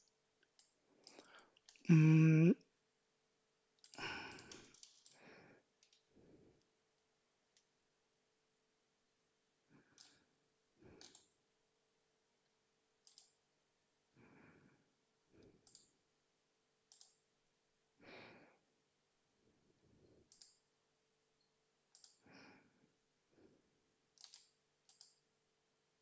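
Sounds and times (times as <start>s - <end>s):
computer mouse clicks: 0.4s - 1.9s, 3.8s - 5.2s, 5.8s - 6.7s, 9.8s - 10.3s, 10.9s - 11.4s, 13.0s - 13.4s, 15.4s - 16.0s, 16.8s - 17.2s, 20.2s - 20.7s, 21.9s - 22.3s, 24.1s - 25.3s
soft breaths: 0.8s - 2.5s, 3.8s - 6.8s, 9.6s - 11.4s, 14.1s - 15.7s, 18.0s - 18.7s, 22.0s - 23.9s.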